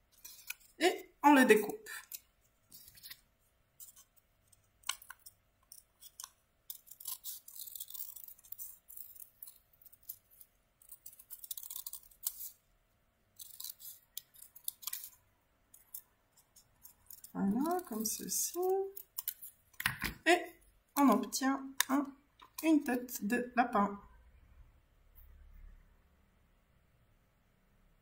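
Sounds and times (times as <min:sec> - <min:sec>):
scissors snipping paper: 0:04.8 - 0:12.6, 0:13.4 - 0:15.2, 0:15.8 - 0:19.8.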